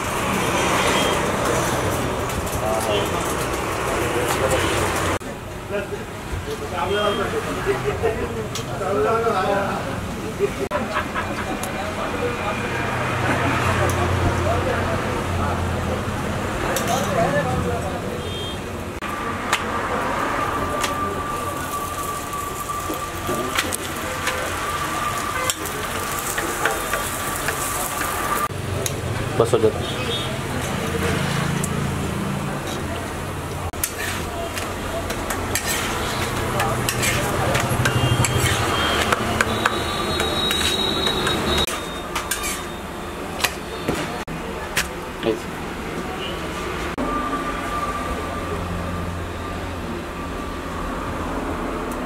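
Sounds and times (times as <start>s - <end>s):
flatbreads sizzling on a griddle: 20.8s - 28.5s, 33.8s - 39.2s
metal utensils clicking and knocking: 33.8s - 42.7s.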